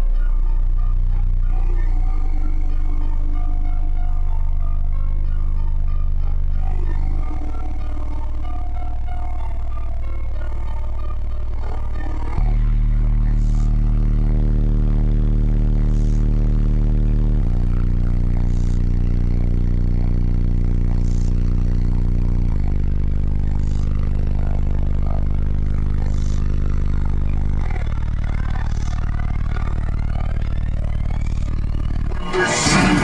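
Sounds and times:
loud held bass notes: 0:00.0 - 0:33.0.

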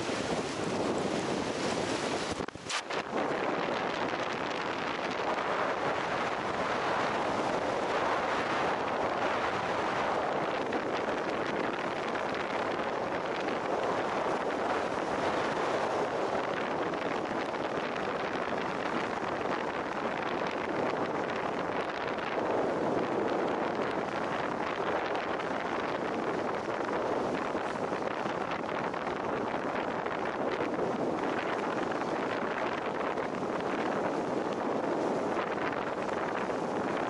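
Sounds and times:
wind buffeting microphone: 0:00.0 - 0:37.0.

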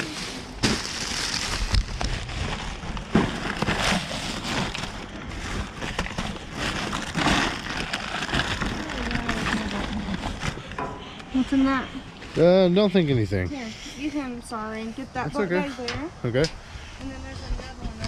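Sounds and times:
plastic bags crinkling: 0:00.0 - 0:10.7.

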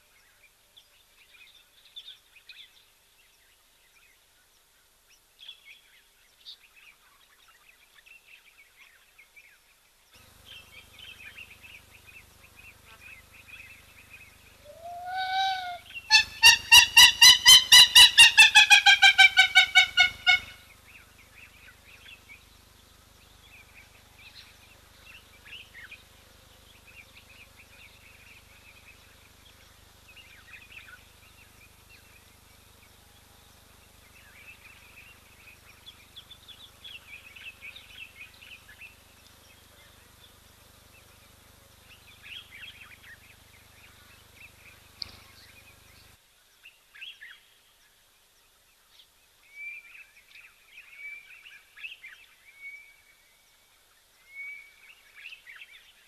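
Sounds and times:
small birds chirping: 0:00.0 - 0:52.2
bird cackling call: 0:14.6 - 0:20.8.

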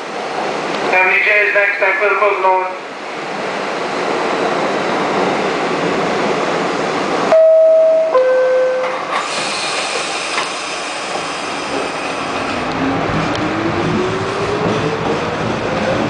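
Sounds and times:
stopped train rushing noise: 0:00.0 - 0:16.0
two-tone door chime: 0:07.3 - 0:09.1
hiss: 0:09.1 - 0:12.4.

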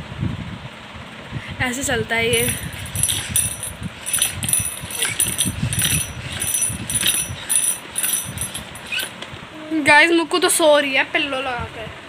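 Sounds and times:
plastic toy legs clacking: 0:02.3 - 0:09.2.

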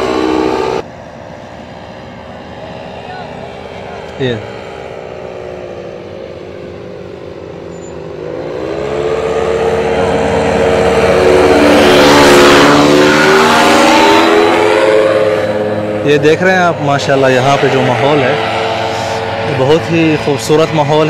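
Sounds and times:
paramotor engine drone: 0:00.0 - 0:21.0.

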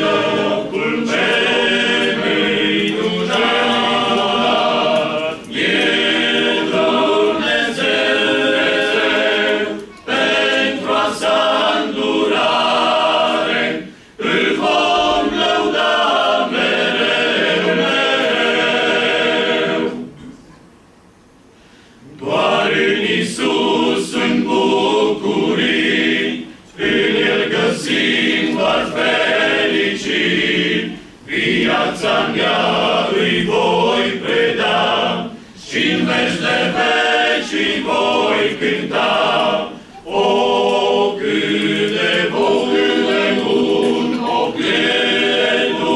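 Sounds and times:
men's choir singing a hymn: 0:00.0 - 0:20.3, 0:22.0 - 0:45.9
singers breathing: 0:13.8 - 0:14.2, 0:21.4 - 0:22.1, 0:35.3 - 0:35.6, 0:39.7 - 0:40.0.

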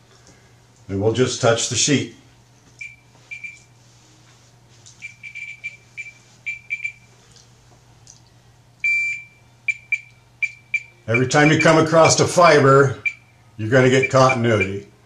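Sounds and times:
multimeter continuity beeps: 0:02.8 - 0:03.8, 0:05.0 - 0:07.1, 0:08.8 - 0:15.0.

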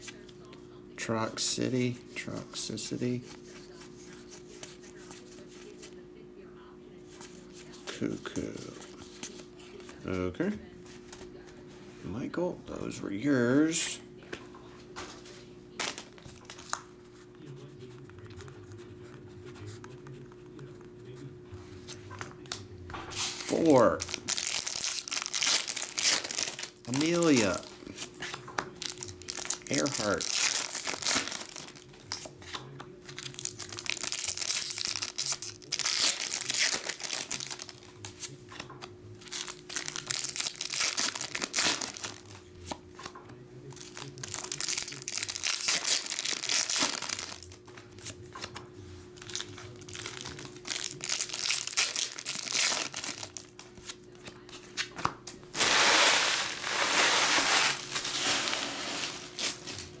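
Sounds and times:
foil wrappers crinkling and tearing: 0:23.2 - 0:42.4, 0:43.6 - 0:48.2, 0:49.2 - 0:54.5, 0:55.5 - 1:00.0.

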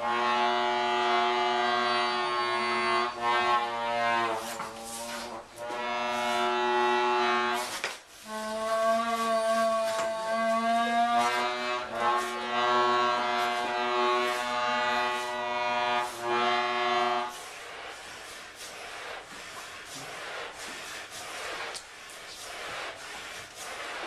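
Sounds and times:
accordion chords: 0:00.0 - 0:04.4, 0:11.2 - 0:17.3.

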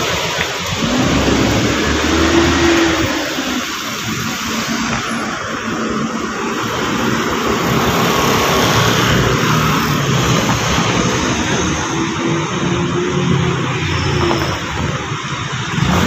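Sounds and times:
traffic hiss: 0:00.0 - 0:16.0
vehicle engine hum: 0:00.0 - 0:16.0.

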